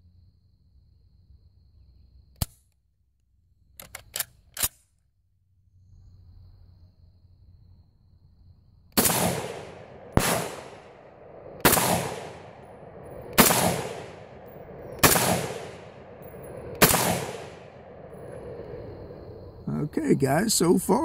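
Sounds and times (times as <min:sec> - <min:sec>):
rifle action cycling: 0:03.8 - 0:04.9
rifle shots: 0:09.0 - 0:18.1.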